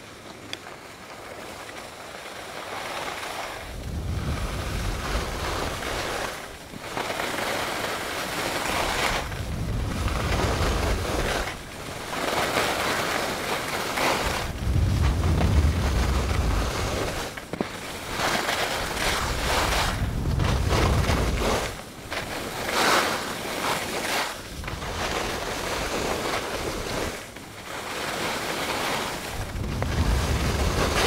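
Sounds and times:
skis scraping over snow: 0.0 - 31.0
wind on microphone: 3.6 - 6.6, 8.5 - 12.4, 14.0 - 17.4, 18.1 - 22.7, 24.4 - 27.2, 29.1 - 31.0.

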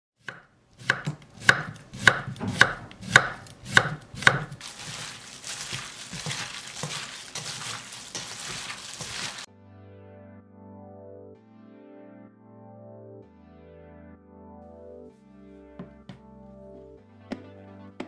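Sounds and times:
knife chopping on wooden board: 0.2 - 9.3
wet rustle of tossing food in bowl: 4.5 - 9.5.

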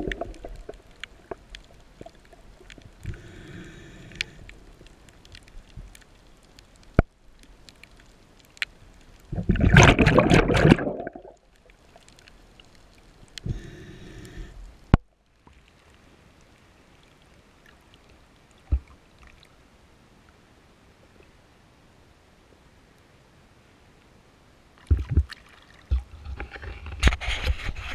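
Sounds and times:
exhaled bubbles gushing underwater: 0.0 - 0.7, 9.3 - 11.4
faint water hiss: 0.0 - 9.5, 10.6 - 27.9
regulator inhale hiss: 3.0 - 4.6, 13.4 - 14.7.

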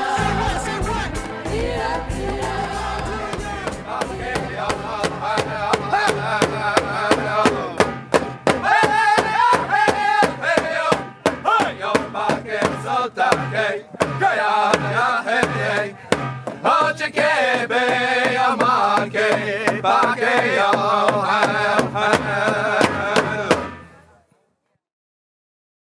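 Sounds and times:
voices singing a chant: 0.0 - 7.9, 8.5 - 23.8
bass-heavy music backing: 0.0 - 9.9
sharp percussion strikes: 0.0 - 24.0.

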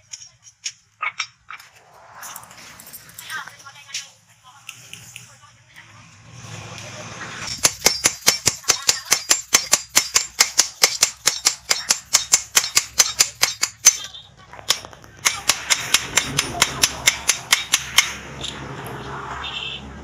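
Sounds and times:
hammer striking hot steel: 7.5 - 14.1, 14.7 - 18.6.

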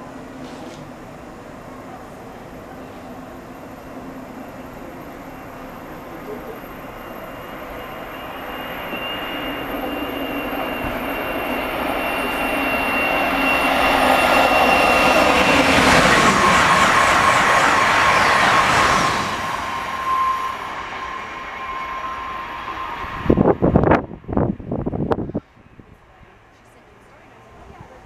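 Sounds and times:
train passing with rushing rumble: 0.0 - 28.0
high whine falling in pitch: 6.8 - 25.2.

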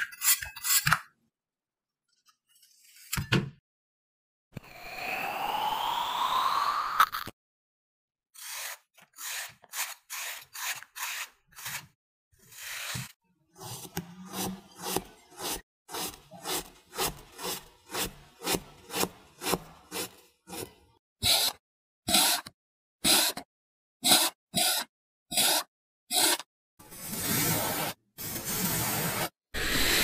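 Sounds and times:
blade scraping through sand: 25.4 - 30.0.

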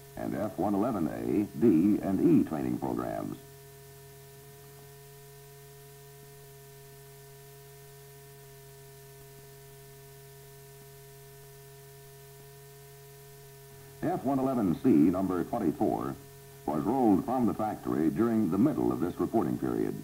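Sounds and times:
faint hiss: 0.0 - 20.0
steady electrical hum: 0.0 - 20.0.

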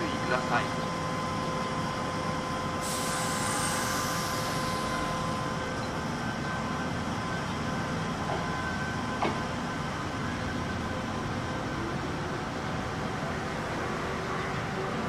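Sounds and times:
electric train pulling away: 0.0 - 15.0
high hiss: 2.8 - 5.0.

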